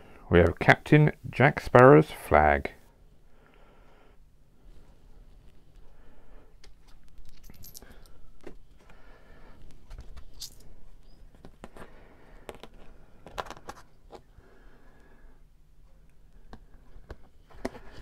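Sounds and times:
metal coins clinking: 7.2s - 8.2s, 10.4s - 10.6s.

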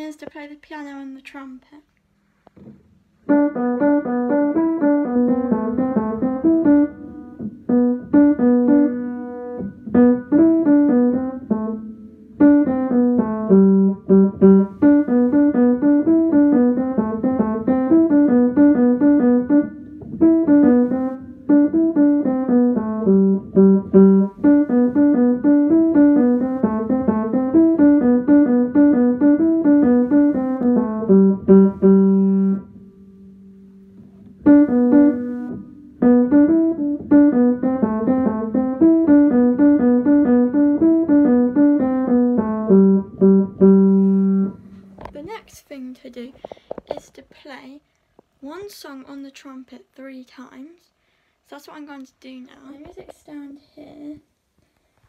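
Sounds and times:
piano melody: 3.2s - 45.0s.

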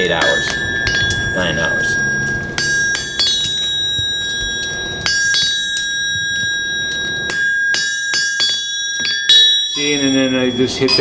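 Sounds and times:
hammer striking metal on anvil: 0.0s - 11.0s.

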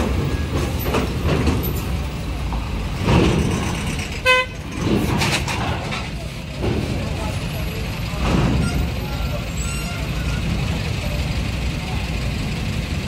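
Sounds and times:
heavy truck engines rumbling: 0.0s - 13.0s
vehicle horn toot: 4.2s - 4.6s.

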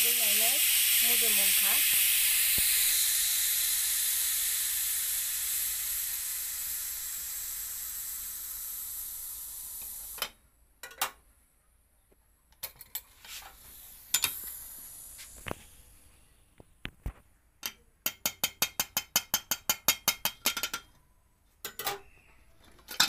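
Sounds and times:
pressure cooker steam hissing: 0.0s - 10.4s, 13.3s - 16.1s.

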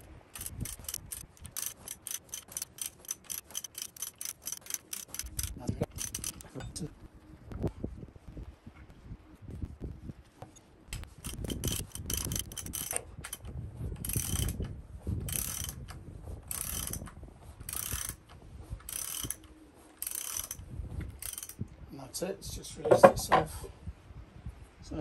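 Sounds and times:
ratchet wrench clicking: 0.0s - 6.6s, 11.2s - 14.6s, 15.3s - 15.8s, 16.5s - 17.1s, 17.7s - 18.2s, 18.9s - 19.4s, 20.0s - 20.6s, 21.2s - 21.6s.

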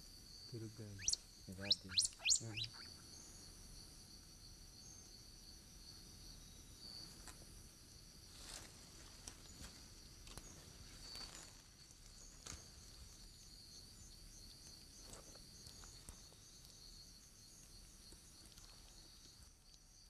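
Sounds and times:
night insects chirring: 0.0s - 20.0s
high rising chirps: 0.9s - 3.0s.

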